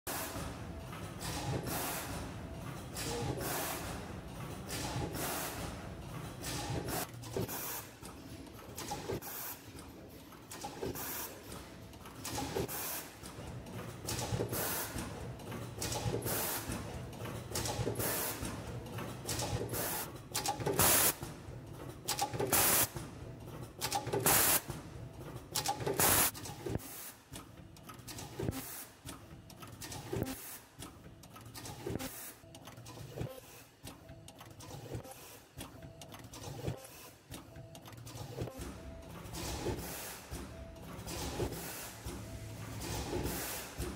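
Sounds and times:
machine tooling clicks and knocks: 0.2s - 43.9s
pneumatic air hisses: 22.5s - 22.9s, 24.3s - 24.6s, 26.0s - 27.2s, 41.5s - 42.2s, 42.8s - 43.9s.

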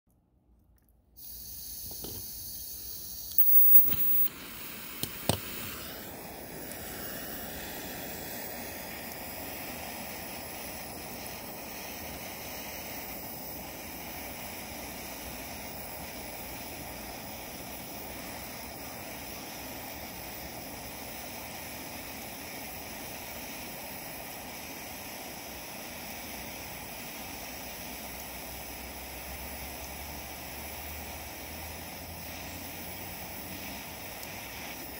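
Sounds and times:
blowtorch flame hissing: 1.2s - 34.9s
igniter clicks: 3.3s - 4.3s.

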